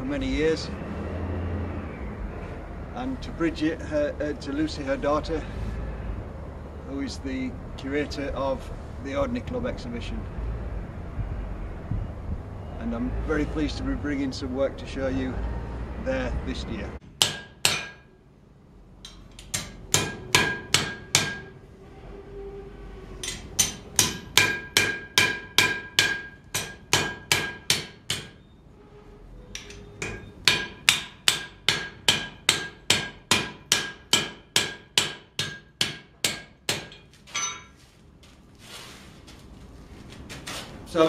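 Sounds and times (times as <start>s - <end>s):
hammer striking steel on anvil: 17.2s - 18.1s, 19.0s - 21.6s, 23.2s - 28.4s, 29.6s - 37.8s.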